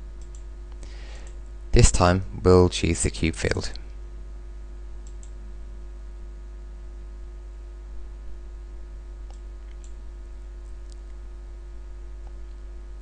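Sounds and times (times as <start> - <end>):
electrical hum: 0.0 - 13.0
computer mouse clicks: 0.2 - 0.5, 5.0 - 5.4, 9.2 - 10.0.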